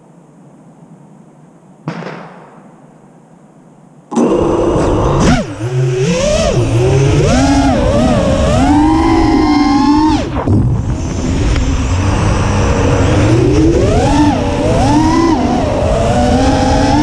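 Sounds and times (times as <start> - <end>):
low hiss: 0.0 - 4.1
quadcopter motors whining: 4.1 - 17.0.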